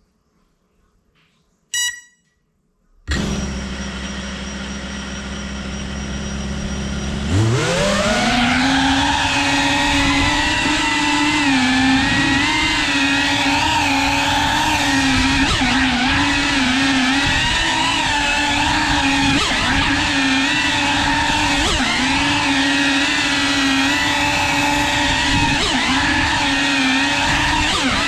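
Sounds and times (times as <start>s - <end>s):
short beep: 1.7s - 2.4s
quadcopter motors and propellers whining: 3.1s - 28.0s.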